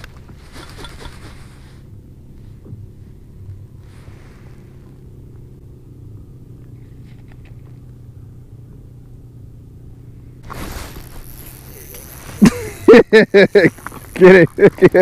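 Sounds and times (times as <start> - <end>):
engine humming low: 0.0 - 15.0.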